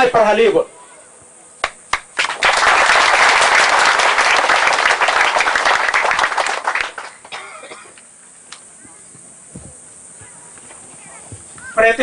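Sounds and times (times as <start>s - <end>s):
crowd applauding: 1.6s - 7.4s.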